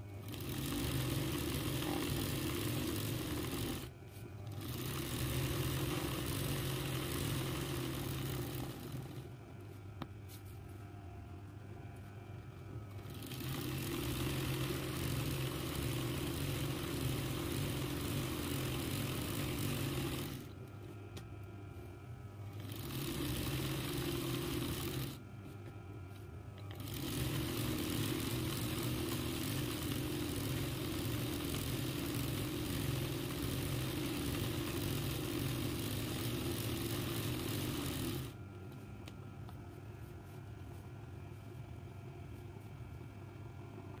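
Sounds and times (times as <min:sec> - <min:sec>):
sewing machine stitching: 0:00.0 - 0:09.3, 0:12.9 - 0:20.5, 0:22.5 - 0:25.2, 0:26.6 - 0:38.4.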